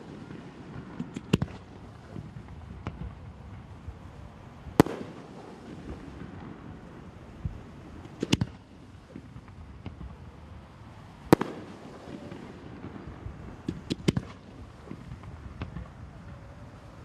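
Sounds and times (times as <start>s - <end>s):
faint firework pops: 0.0s - 3.2s, 4.8s - 6.6s, 7.4s - 10.2s, 11.3s - 16.6s
firework shells bursting: 8.0s - 10.1s, 11.2s - 16.5s.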